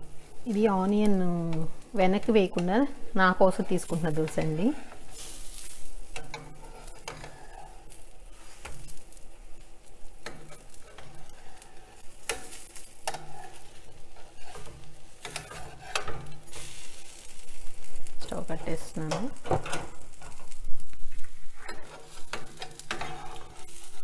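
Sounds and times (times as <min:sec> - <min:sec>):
light sizzle: 0:00.0 - 0:24.0
spatula scraping on pan: 0:00.0 - 0:24.0.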